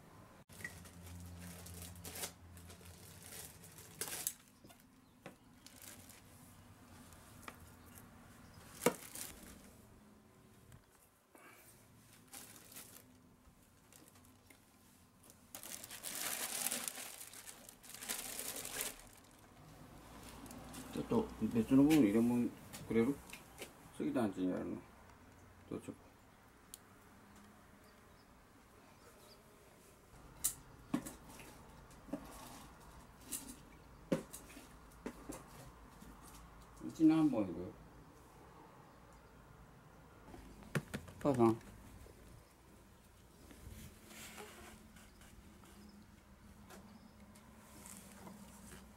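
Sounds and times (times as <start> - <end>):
plastic bag rustling: 0.5 - 8.0, 8.6 - 9.8, 12.1 - 21.0.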